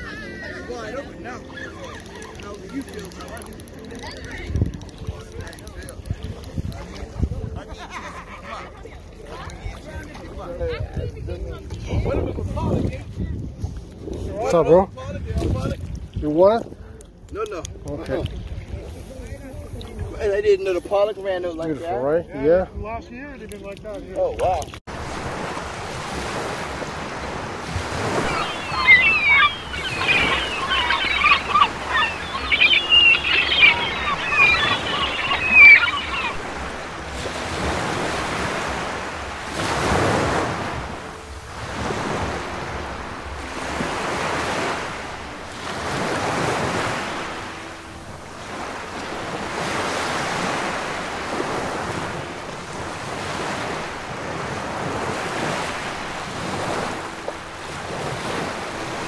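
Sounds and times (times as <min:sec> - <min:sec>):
high chirping chatter: 0:00.0 - 0:07.1, 0:27.6 - 0:39.1
waves lapping on sandy shore: 0:00.0 - 0:21.0, 0:23.5 - 0:59.0
wind buffeting microphone: 0:09.6 - 0:17.0.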